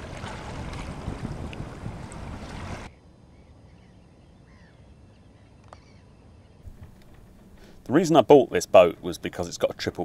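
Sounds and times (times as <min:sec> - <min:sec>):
wind rumbling on microphone: 0:00.0 - 0:03.0, 0:06.6 - 0:09.4
distant seabird calls: 0:03.3 - 0:08.0.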